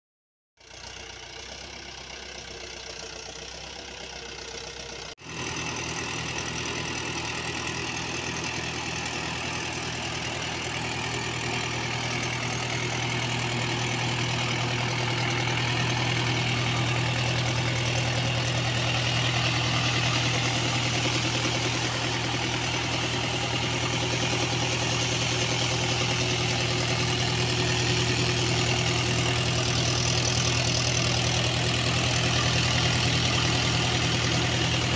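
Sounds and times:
tractor diesel engine idling: 0:00.6 - 0:34.9.

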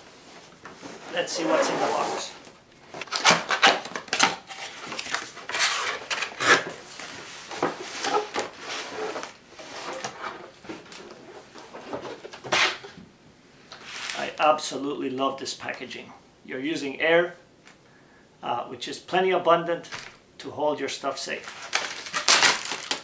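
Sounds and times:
plastic packaging rustling: 0:02.2 - 0:12.8, 0:21.3 - 0:23.0.

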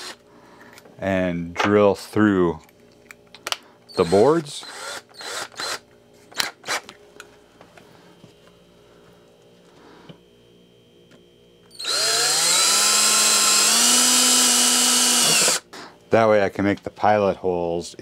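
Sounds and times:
cordless drill boring wood: 0:00.0 - 0:00.2, 0:03.9 - 0:05.8, 0:11.7 - 0:15.6.

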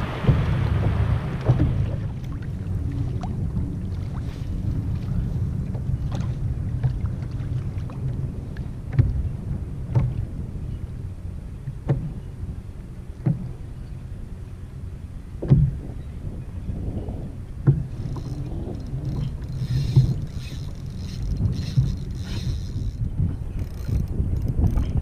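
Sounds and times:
waves slapping kayak hull: 0:00.0 - 0:10.6, 0:13.1 - 0:14.1, 0:16.8 - 0:25.0
wind and water rumble: 0:00.0 - 0:25.0
fishing reel drag buzzing: 0:17.9 - 0:25.0.

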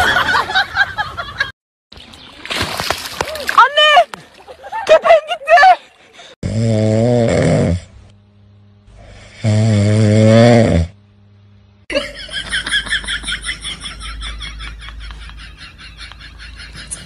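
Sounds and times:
dog snoring: 0:06.4 - 0:07.9, 0:09.0 - 0:11.0.

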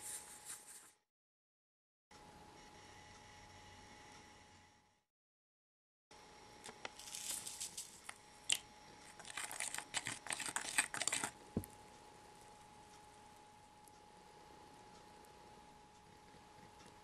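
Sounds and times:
faint steady hum: 0:06.1 - 0:17.0
foil packet crinkling: 0:06.8 - 0:11.4
plastic spoon stirring and scraping: 0:07.0 - 0:11.7.

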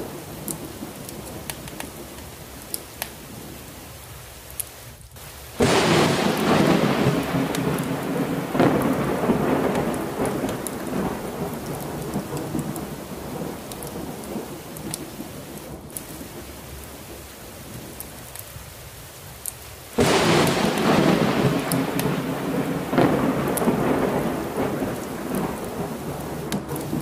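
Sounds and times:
heavy rain: 0:00.0 - 0:27.0
thunder rumbling: 0:05.2 - 0:18.7, 0:20.0 - 0:27.0.

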